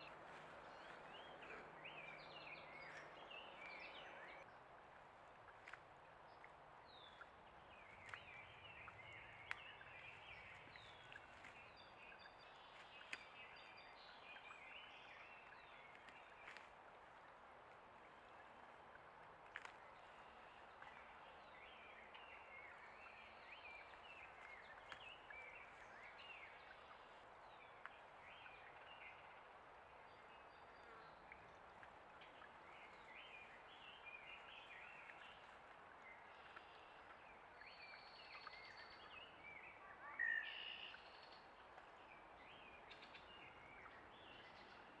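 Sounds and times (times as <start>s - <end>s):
small birds chirping: 5.6s - 16.7s.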